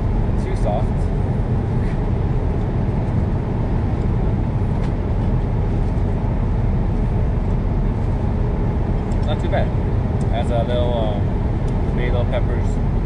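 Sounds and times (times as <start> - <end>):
airliner engine rumble: 0.0 - 13.0.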